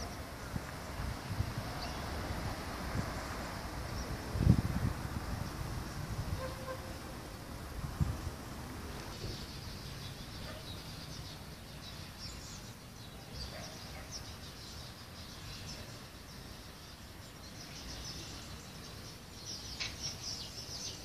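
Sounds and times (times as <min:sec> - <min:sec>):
small birds chirping: 0:00.0 - 0:04.4, 0:08.8 - 0:21.0.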